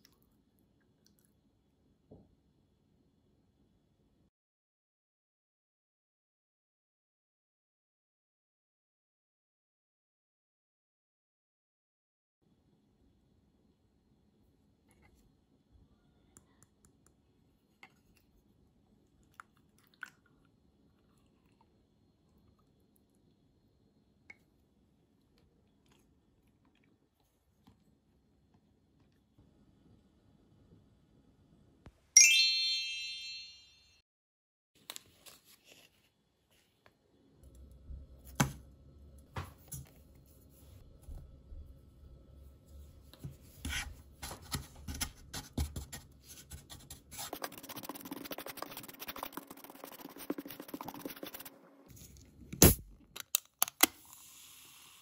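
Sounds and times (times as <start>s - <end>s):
bright chime: 32.2s - 34.0s.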